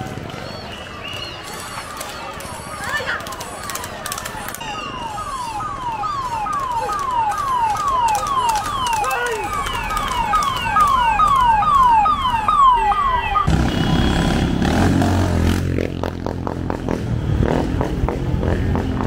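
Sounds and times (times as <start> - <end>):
vehicle engines passing: 0.0 - 19.0
siren yelping: 1.4 - 13.5.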